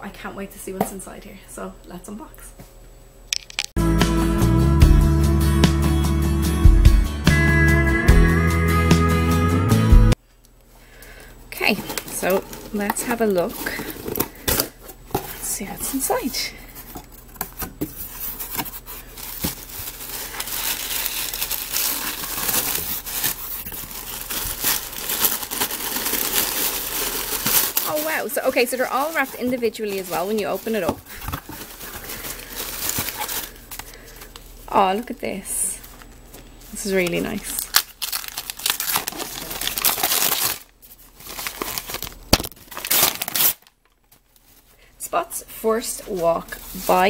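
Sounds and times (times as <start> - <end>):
tissue paper crinkling: 18.0 - 34.6, 36.6 - 43.7, 46.0 - 47.0.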